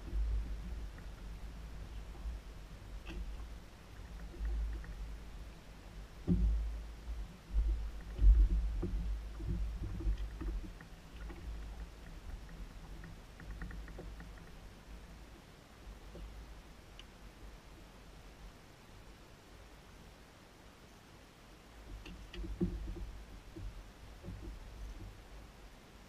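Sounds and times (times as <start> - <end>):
knocks on boat hull: 6.2 - 6.8
faint light clicking: 16.1 - 17.2.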